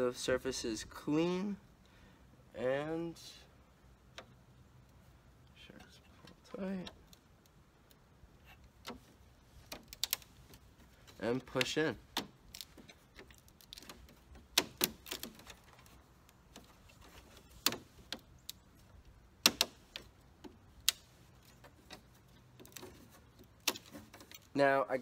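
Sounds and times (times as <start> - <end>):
sharp plastic clicks: 6.3 - 24.5.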